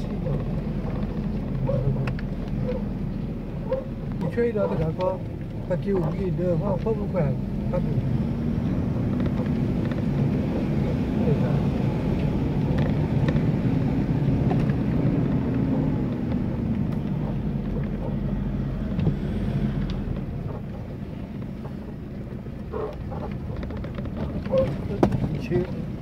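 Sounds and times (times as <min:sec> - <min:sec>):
vehicle engine running: 0:00.0 - 0:26.0
knocks and rattles from bumps: 0:20.0 - 0:26.0.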